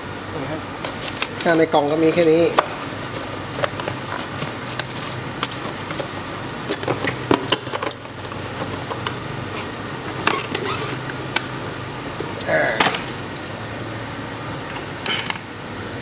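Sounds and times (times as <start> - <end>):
paper rustling: 0.8 - 7.2.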